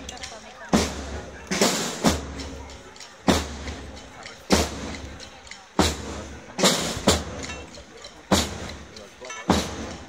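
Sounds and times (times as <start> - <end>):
booming procession drum beats: 0.0 - 10.0.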